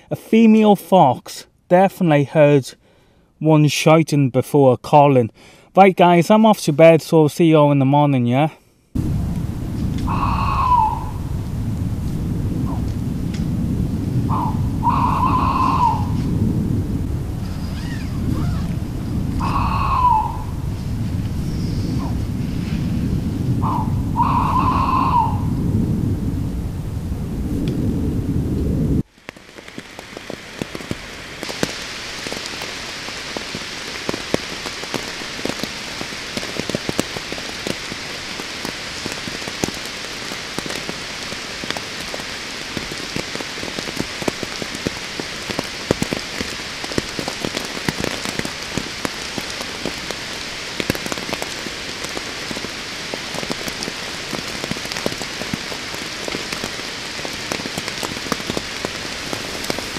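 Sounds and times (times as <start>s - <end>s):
heavy rain falling: 9.0s - 59.9s
raindrops striking close: 9.0s - 59.9s.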